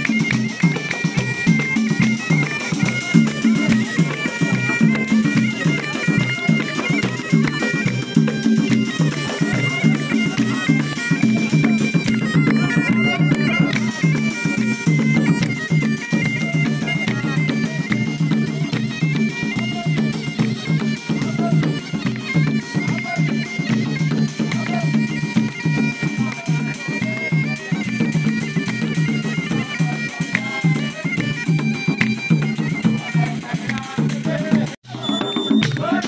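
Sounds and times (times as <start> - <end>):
bagpipe playing a melody: 0.0 - 34.0
hand drums beating: 0.0 - 36.0.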